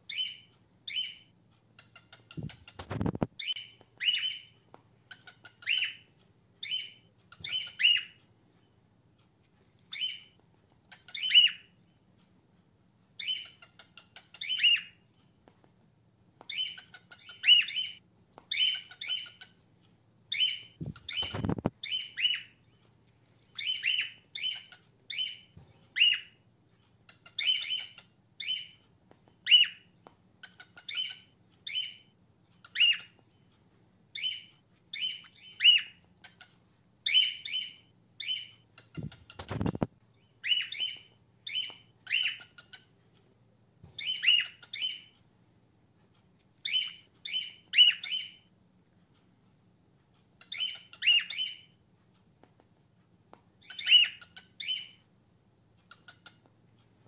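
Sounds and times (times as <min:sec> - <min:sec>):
cockatiel contact calls: 0:00.1 - 0:04.5, 0:05.1 - 0:08.2, 0:09.7 - 0:11.7, 0:13.2 - 0:15.0, 0:16.4 - 0:19.6, 0:20.3 - 0:22.7, 0:23.3 - 0:26.4, 0:27.1 - 0:28.8, 0:29.4 - 0:32.0, 0:32.6 - 0:33.2, 0:34.1 - 0:43.0, 0:44.0 - 0:45.2, 0:46.6 - 0:48.5, 0:50.4 - 0:51.7, 0:53.6 - 0:55.0.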